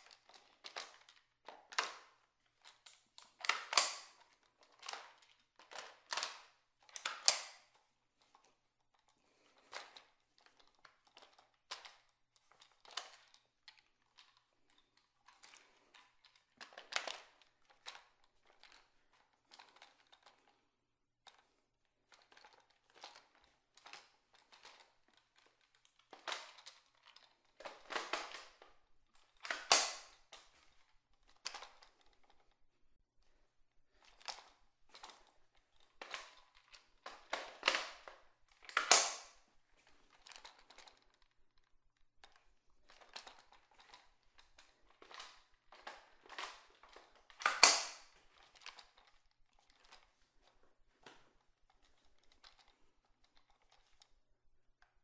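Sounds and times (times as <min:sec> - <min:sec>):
rifle reloading clicks and clacks: 0:00.0 - 0:07.7, 0:22.2 - 0:32.4, 0:34.0 - 0:39.4, 0:40.1 - 0:50.1.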